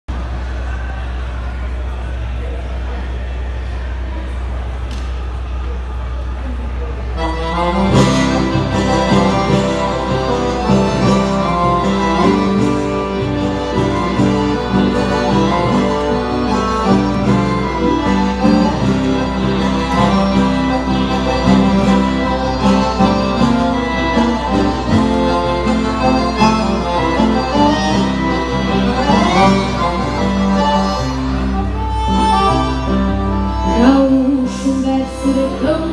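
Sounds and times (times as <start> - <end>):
accordion and guitar folk music: 7.1 - 35.9.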